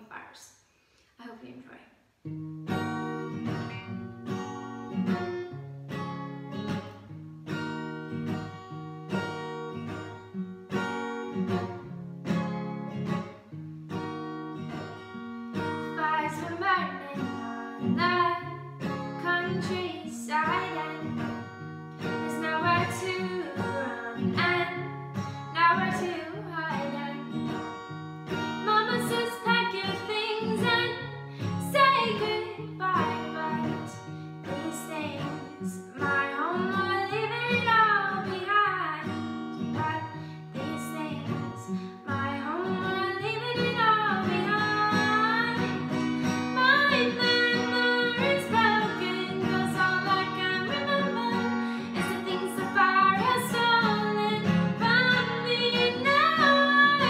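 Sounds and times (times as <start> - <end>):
acoustic guitar strumming: 2.3 - 57.0
woman singing: 15.8 - 27.6, 28.6 - 57.0.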